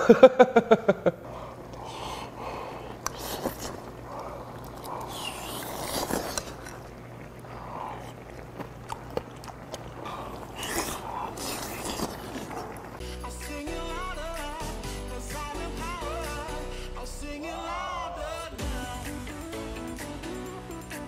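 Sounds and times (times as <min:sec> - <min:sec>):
man chewing food: 0:01.2 - 0:16.8.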